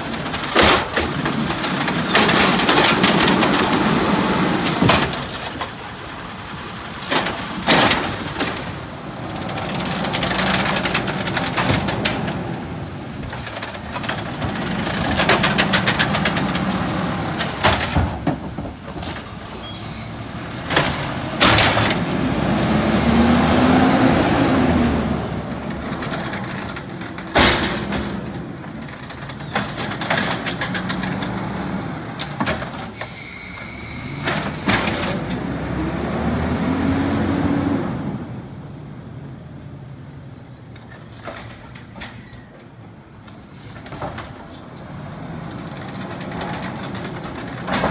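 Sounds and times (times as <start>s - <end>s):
garbage truck engine revving: 0.0s - 5.4s, 20.0s - 32.4s, 33.9s - 38.2s
carts knocking and banging: 0.0s - 6.0s, 6.8s - 23.4s, 24.5s - 33.2s, 34.1s - 35.7s, 43.4s - 47.9s.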